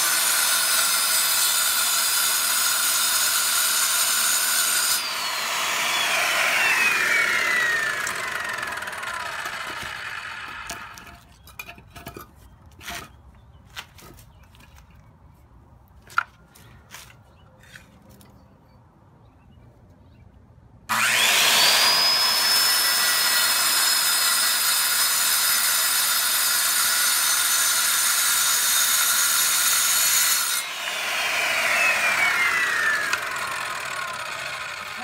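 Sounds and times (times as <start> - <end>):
circular saw cutting rock: 0.0 - 11.6, 20.9 - 35.0
saw blade whine spinning down: 3.1 - 11.2, 20.9 - 25.4, 30.2 - 35.0.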